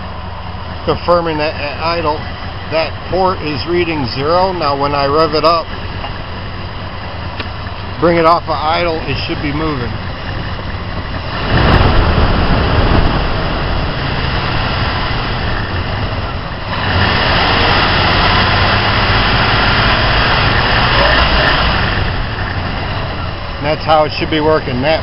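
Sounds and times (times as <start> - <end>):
car engine revving: 0.0 - 25.0.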